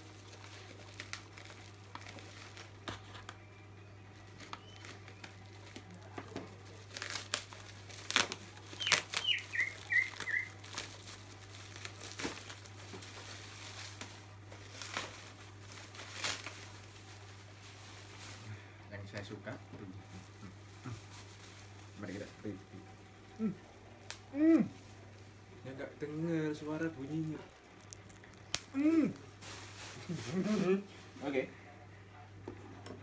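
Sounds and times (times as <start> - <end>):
bubble wrap crinkling: 0.0 - 31.5
steady low hum: 0.0 - 33.0
high falling chirps: 8.8 - 10.6.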